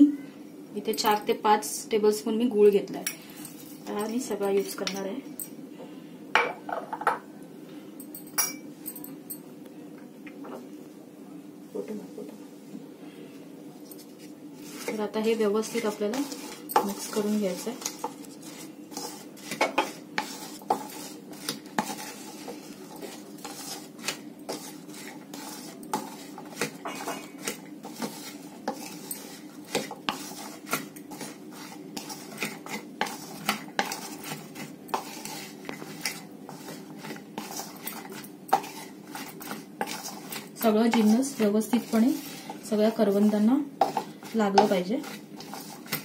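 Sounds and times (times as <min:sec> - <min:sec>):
wooden spatula scraping a bowl: 0:14.0 - 0:46.0.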